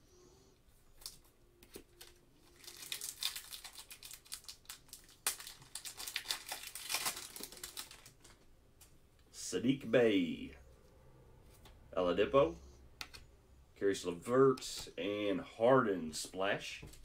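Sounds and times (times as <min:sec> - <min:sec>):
plastic wrapper crinkling: 0:01.0 - 0:08.4.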